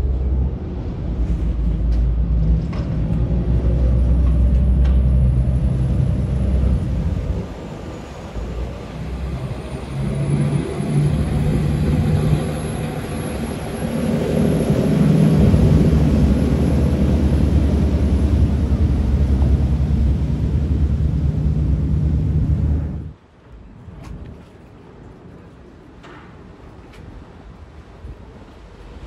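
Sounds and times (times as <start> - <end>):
ferry diesel engines droning: 0.0 - 23.2.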